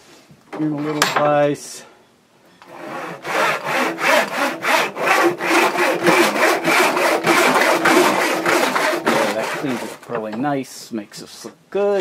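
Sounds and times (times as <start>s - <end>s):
handsaw cutting a stick: 2.7s - 10.0s.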